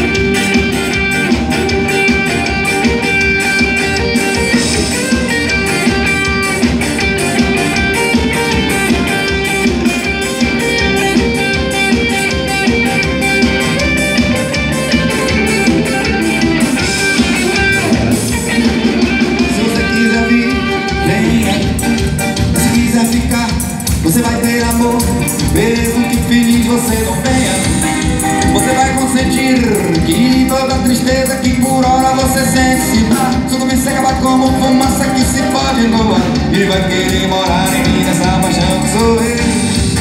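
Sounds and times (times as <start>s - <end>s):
bass guitar: 0.0s - 40.0s
electric guitar: 0.0s - 40.0s
steady drum beat: 0.0s - 40.0s.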